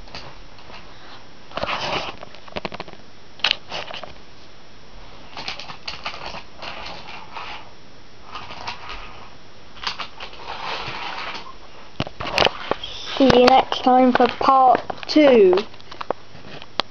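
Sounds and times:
toy trains clicking and rattling: 5.3s - 7.6s.

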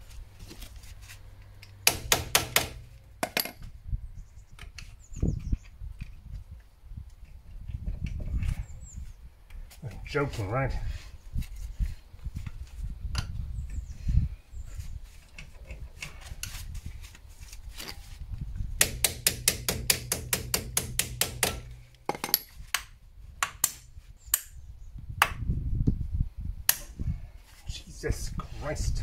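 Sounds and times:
hammer tapping on metal: 18.8s - 22.4s.

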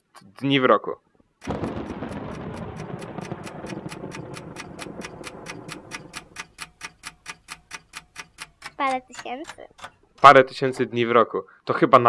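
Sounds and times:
clock ticking: 0.0s - 11.9s.

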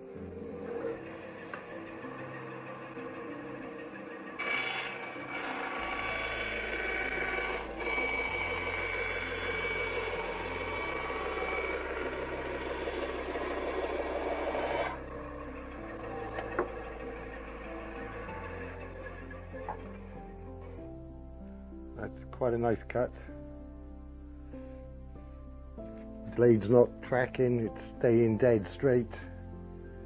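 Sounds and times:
band saw cutting board: 0.1s - 20.2s
background music with bass: 14.9s - 30.0s.

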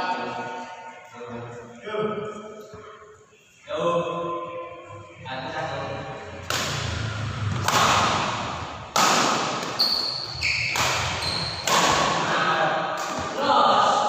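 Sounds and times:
racket hitting shuttlecock: 6.5s - 6.9s, 7.6s - 12.3s, 12.9s - 13.4s
shoes squeaking on court floor: 9.6s - 12.0s.

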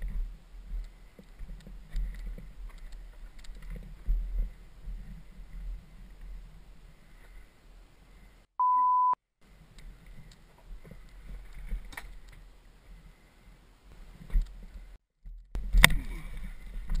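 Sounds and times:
faint clicks: 0.0s - 4.2s
censor bleep: 8.6s - 9.2s.

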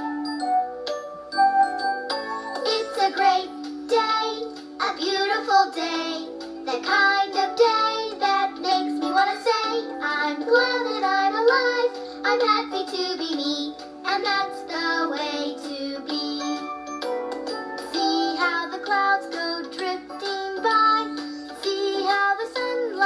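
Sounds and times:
instrumental backing music: 0.0s - 23.0s.

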